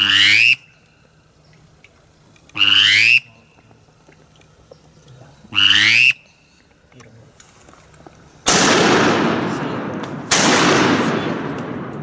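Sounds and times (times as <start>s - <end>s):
duck call squeal: 0.0s - 0.7s, 2.6s - 3.3s, 5.5s - 6.2s.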